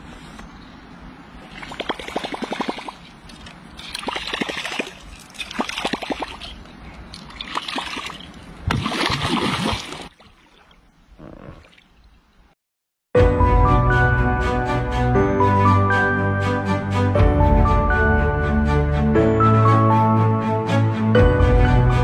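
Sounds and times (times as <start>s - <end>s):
lure splashing on water: 1.4s - 10.8s
fish thrashing at water surface: 7.2s - 10.2s.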